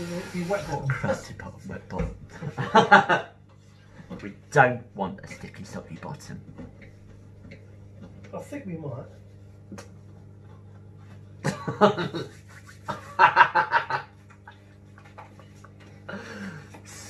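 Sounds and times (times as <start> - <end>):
low steady hum: 0.0 - 17.0
people laughing: 2.4 - 3.3, 11.4 - 14.1.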